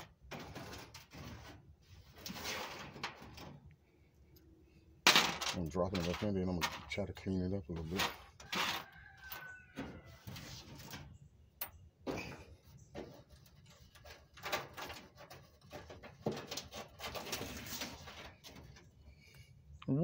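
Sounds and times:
scraping on sheet metal: 0.0s - 3.6s, 7.8s - 11.2s, 12.1s - 18.9s.

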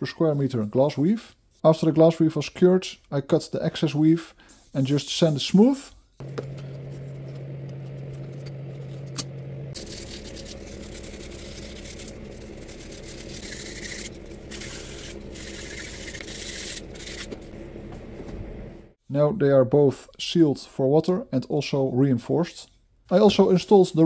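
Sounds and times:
steady low hum: 6.2s - 19.0s
hand sanding wood: 9.7s - 18.2s.

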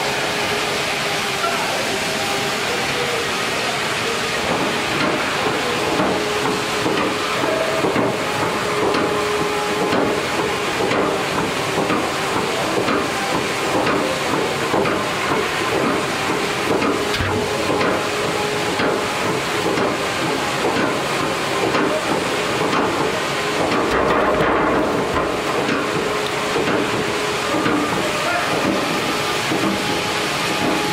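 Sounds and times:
conveyor machinery running: 0.0s - 30.9s.

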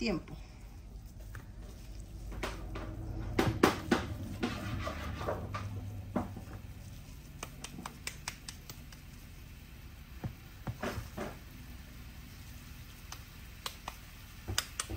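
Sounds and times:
low steady hum: 0.0s - 14.9s
kitchen handling knocks and clicks: 2.4s - 6.5s.

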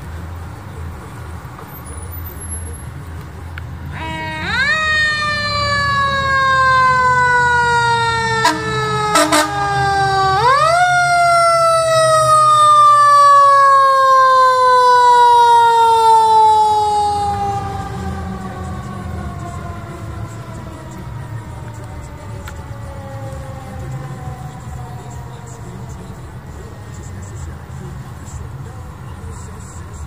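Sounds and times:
diesel engine rumble: 0.0s - 30.0s
short siren blasts: 3.9s - 21.0s.

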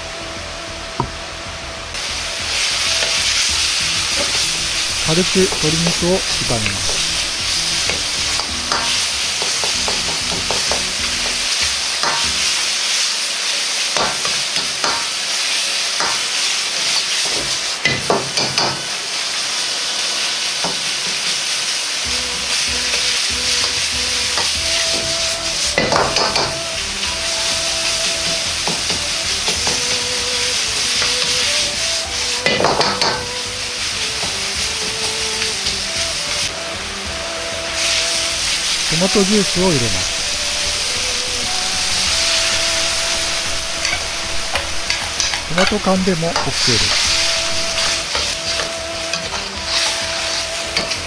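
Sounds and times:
food sizzling in a wok: 0.0s - 51.0s
metal ladle scraping a pan: 2.6s - 12.6s, 46.4s - 51.0s.

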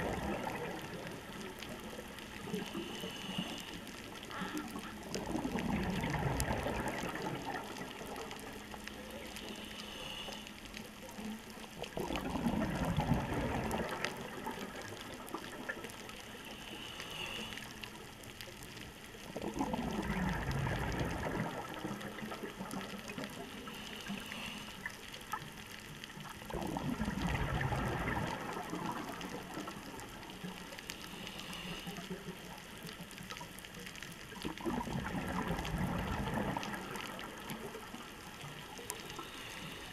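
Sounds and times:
exhaled bubbles rushing: 0.0s - 2.0s, 4.9s - 8.5s, 11.9s - 15.9s, 19.3s - 23.5s, 26.3s - 30.4s, 34.4s - 38.6s
regulator inhale hiss: 2.5s - 4.6s, 9.0s - 11.2s, 16.0s - 18.2s, 23.4s - 25.2s, 30.7s - 32.6s, 38.9s - 39.9s.

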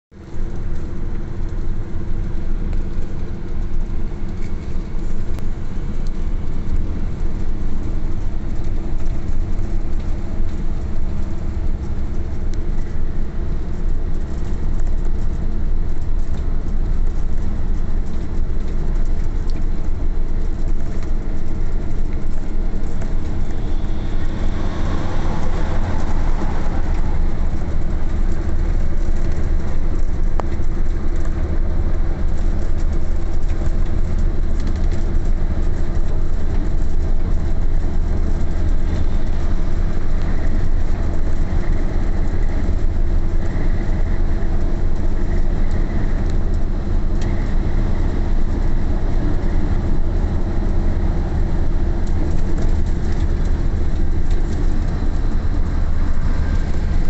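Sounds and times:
truck engine and tyre rumble: 0.0s - 57.0s
rushing noise: 22.4s - 30.3s.

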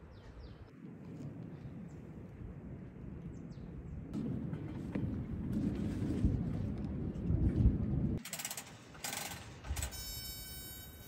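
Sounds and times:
low rumbling and thumps: 0.8s - 8.2s
high electric igniter buzz: 9.9s - 11.0s.

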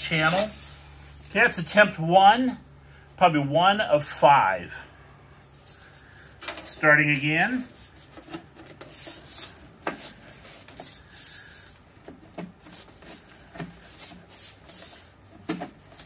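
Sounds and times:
hands rubbing on sheet metal: 7.5s - 16.0s.

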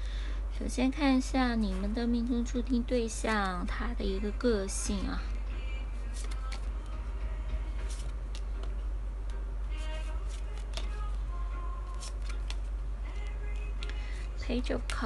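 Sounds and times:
soft background music: 0.4s - 15.0s
cards clicking and snapping: 6.1s - 6.7s, 7.9s - 9.4s, 10.2s - 11.2s, 11.8s - 14.0s.

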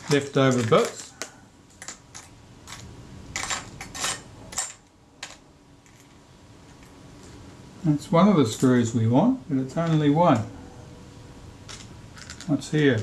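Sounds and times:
small metal parts clinking: 0.0s - 6.2s, 11.7s - 13.0s.

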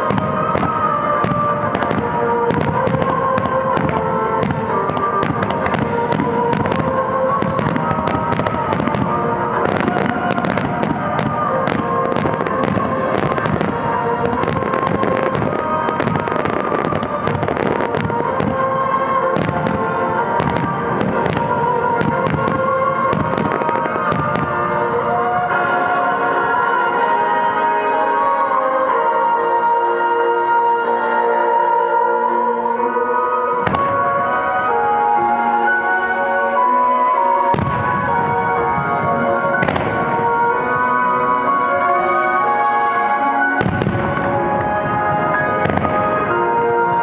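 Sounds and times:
fireworks bursting: 0.0s - 26.0s, 37.4s - 42.6s, 43.4s - 47.0s
show music with held tones: 0.0s - 47.0s.

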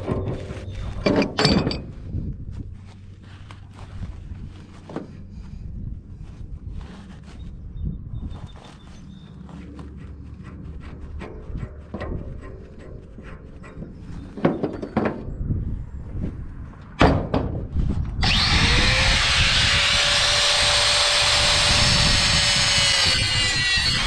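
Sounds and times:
metal knocks and clanks: 0.0s - 2.1s, 9.9s - 15.4s, 16.8s - 17.8s
angle grinder cutting metal: 18.2s - 24.0s.

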